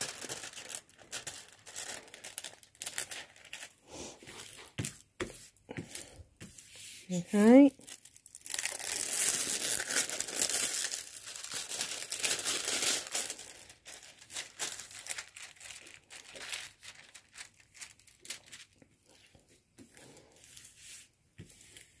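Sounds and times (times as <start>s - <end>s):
plastic packaging crinkling: 0.0s - 5.2s, 7.3s - 19.4s.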